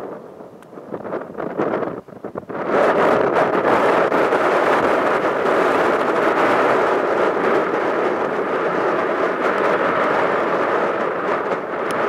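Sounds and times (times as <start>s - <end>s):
jet engines rushing: 2.8s - 12.0s.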